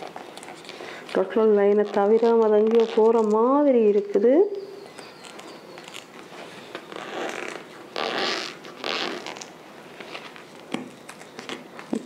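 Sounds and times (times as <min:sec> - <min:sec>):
cardboard tear strip tearing: 0:01.5 - 0:03.5, 0:05.2 - 0:10.4.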